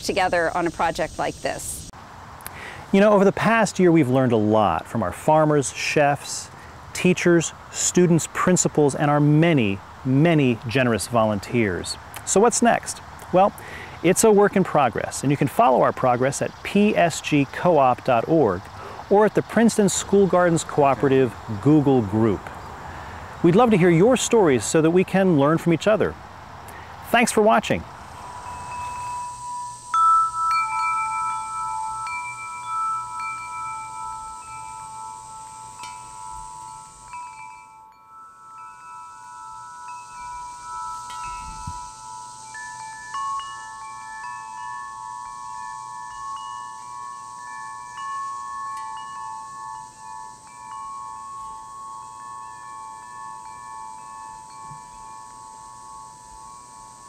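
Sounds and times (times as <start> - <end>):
chimes ringing: 27.2 - 57.0.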